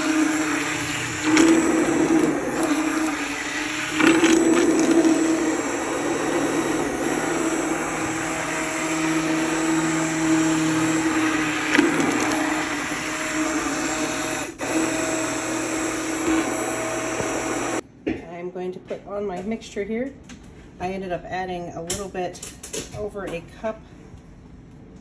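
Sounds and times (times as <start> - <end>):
immersion blender whirring: 0.0 - 17.8.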